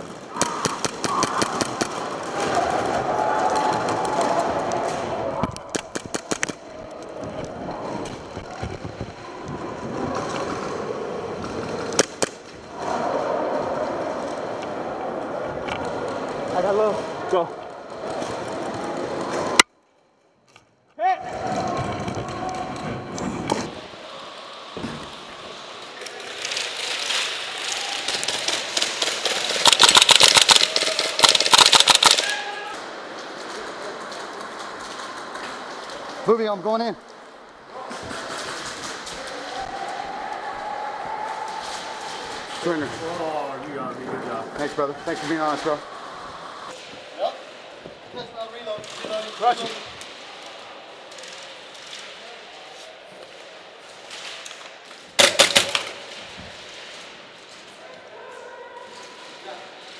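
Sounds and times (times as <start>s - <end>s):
airsoft gunshots: 29.0s - 32.4s, 55.2s - 55.9s.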